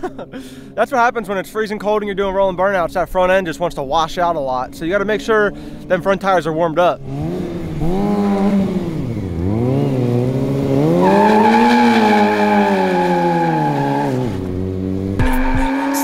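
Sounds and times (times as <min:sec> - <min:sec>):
motorcycle engine revving: 0:04.7 - 0:16.0
tyre squealing: 0:09.4 - 0:16.0.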